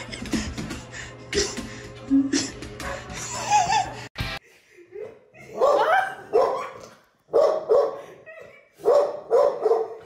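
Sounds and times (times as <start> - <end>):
dog barking: 5.6 - 10.0.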